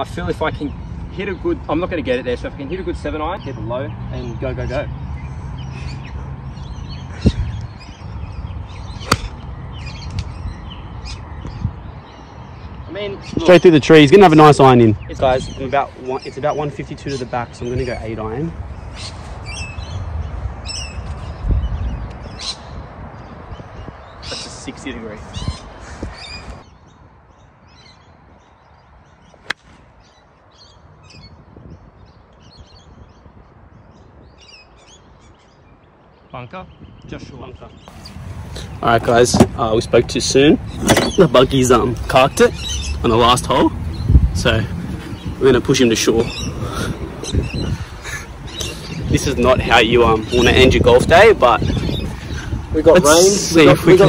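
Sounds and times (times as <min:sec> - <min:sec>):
birds chirping: 0:00.0 - 0:54.0
golf club striking ball: 0:09.0 - 0:09.4, 0:40.8 - 0:41.2
dull thump: 0:39.3 - 0:39.6, 0:40.8 - 0:41.2.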